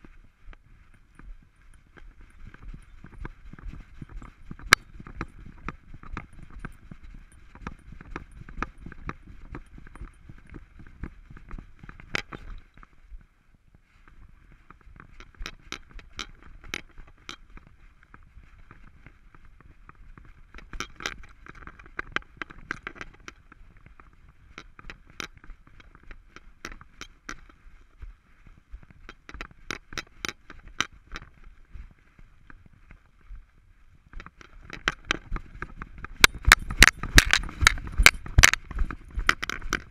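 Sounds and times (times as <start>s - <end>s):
camera jostling rumble: 0.0s - 13.3s, 14.1s - 39.9s
clicks rattles and scrapes: 11.4s - 12.7s, 34.1s - 39.9s.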